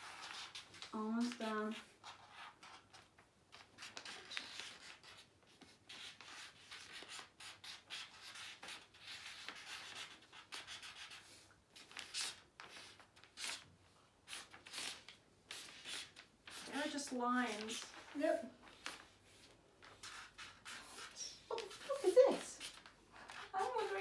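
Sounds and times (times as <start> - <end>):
pens scratching on paper: 0.0 - 24.0.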